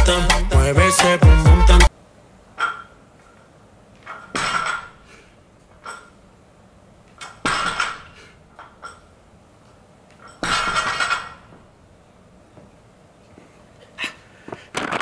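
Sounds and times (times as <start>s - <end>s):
barbell clanking: 2.6s - 3.0s, 4.0s - 5.1s, 5.7s - 6.2s, 7.1s - 9.2s, 10.1s - 11.7s
weight plates rattling: 4.0s - 5.1s, 7.2s - 9.1s, 10.2s - 11.6s.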